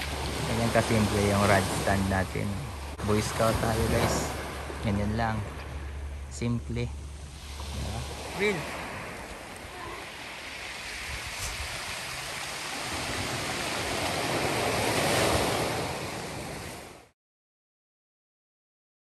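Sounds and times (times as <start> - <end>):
waves breaking on pebble shore: 0.0 - 5.9, 7.2 - 17.1.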